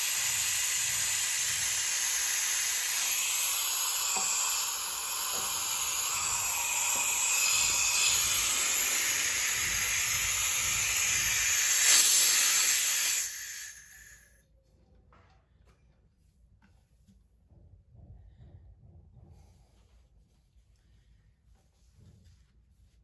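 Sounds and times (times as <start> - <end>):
compressed air hissing from valve: 0.0 - 14.3.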